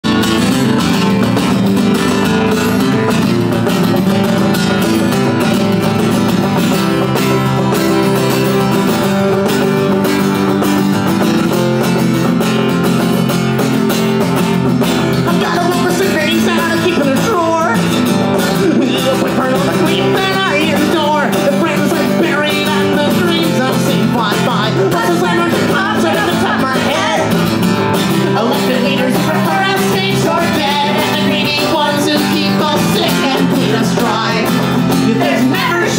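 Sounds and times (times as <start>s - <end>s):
acoustic guitar and banjo playing: 0.0s - 35.9s
person singing: 15.1s - 35.9s.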